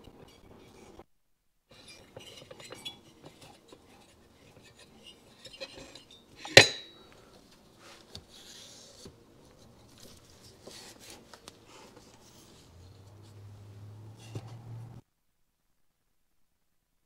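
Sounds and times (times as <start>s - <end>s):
handling noise with clicks: 5.4s - 13.4s.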